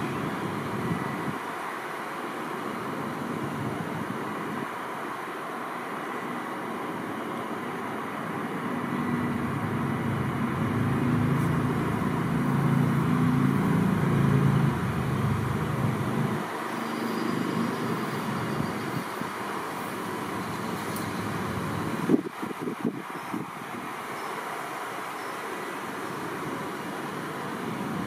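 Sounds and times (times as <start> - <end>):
distant traffic: 0.0 - 28.0
vehicle driving past: 8.9 - 18.7.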